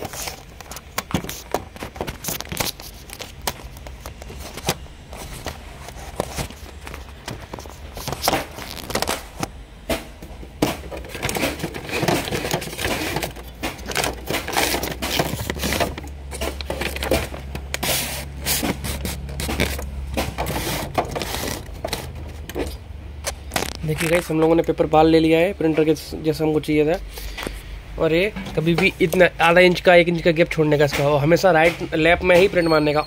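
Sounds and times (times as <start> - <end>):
paper rustling and scraping: 0.0 - 10.0, 10.6 - 22.8
low steady hum: 0.0 - 32.3.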